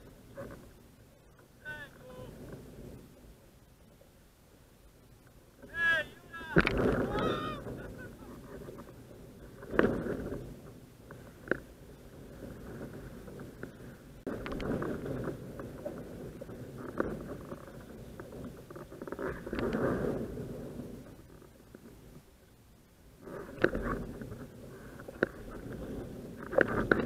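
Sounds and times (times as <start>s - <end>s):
wind buffeting microphone: 4.8s - 22.4s, 23.1s - 27.0s.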